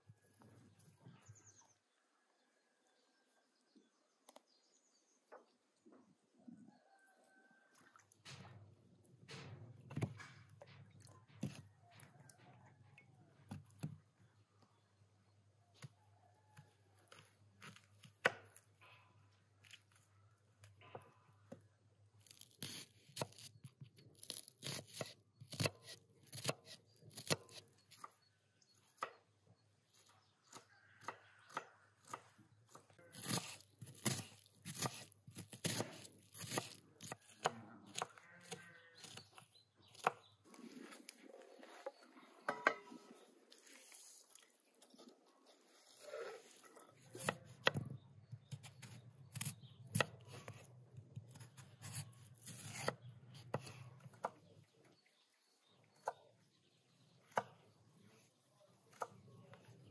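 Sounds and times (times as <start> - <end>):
knife chopping on wooden board: 30.5 - 39.2.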